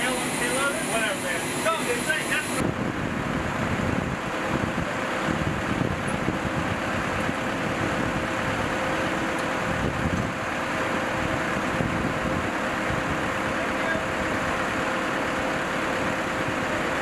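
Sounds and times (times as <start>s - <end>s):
engine drone: 0.0s - 17.0s
wind buffeting microphone: 2.5s - 14.6s.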